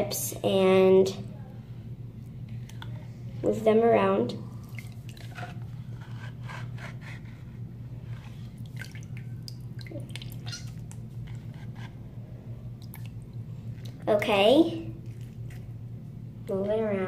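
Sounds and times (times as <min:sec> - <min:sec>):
small water splashes and drips: 0:04.6 - 0:05.4, 0:08.6 - 0:11.1, 0:12.8 - 0:14.0.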